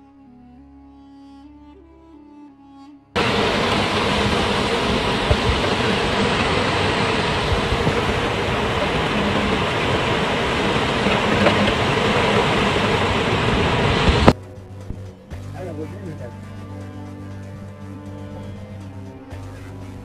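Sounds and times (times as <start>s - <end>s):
strong storm wind: 3.2s - 14.4s
wind buffeting microphone: 3.2s - 15.2s.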